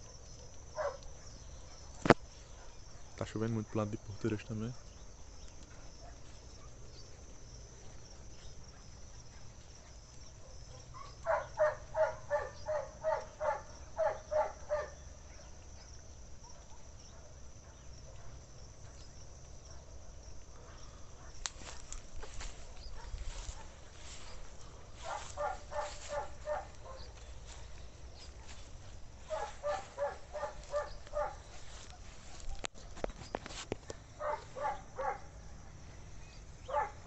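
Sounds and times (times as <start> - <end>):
insects chirring: 0.0 - 37.0
animal calling: 24.3 - 27.2, 29.3 - 31.6.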